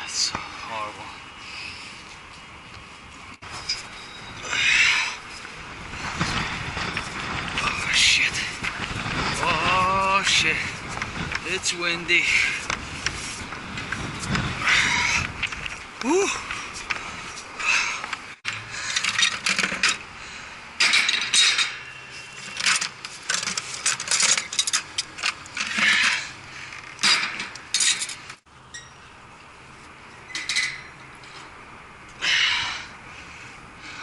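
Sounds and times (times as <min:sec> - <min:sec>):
metal tools clattering on steel grating: 0:20.8 - 0:26.3, 0:27.0 - 0:29.0, 0:30.3 - 0:31.4.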